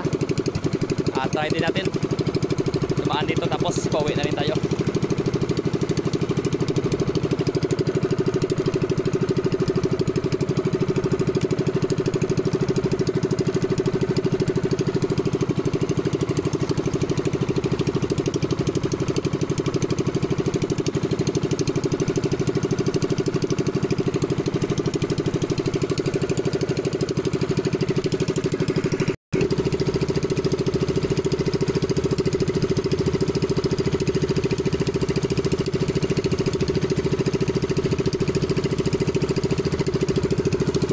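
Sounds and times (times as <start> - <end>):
boat engine running: 0.0 - 40.9.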